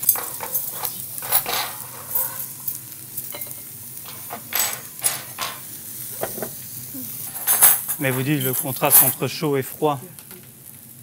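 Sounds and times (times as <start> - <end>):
faint sizzle: 0.0 - 11.0.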